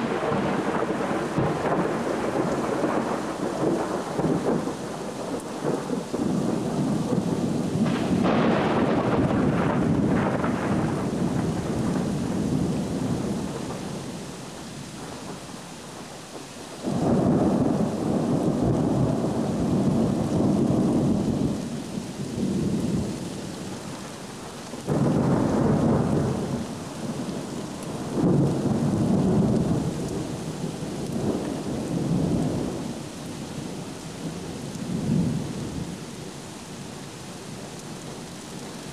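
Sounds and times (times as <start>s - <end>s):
thunder rumbling: 0.0s - 14.1s, 16.8s - 23.9s, 24.8s - 33.0s
steady rain: 0.0s - 38.9s
thunder clap: 7.1s - 12.0s.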